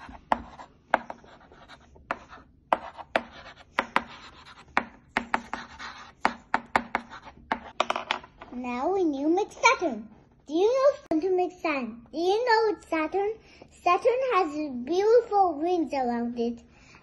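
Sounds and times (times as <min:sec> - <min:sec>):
wooden stick tapping on table: 0:06.2 - 0:08.3.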